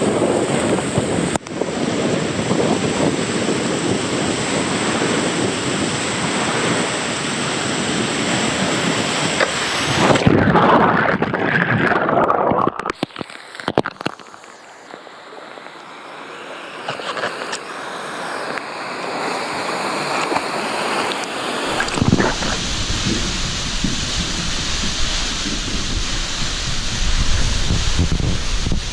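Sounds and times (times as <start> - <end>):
wind noise on microphone: 0.0 - 14.2, 21.6 - 28.9
body sliding on water slide: 0.0 - 28.9
rushing water: 0.0 - 28.9
water sloshing: 21.0 - 25.6
knocks and splashes: 21.7 - 26.0.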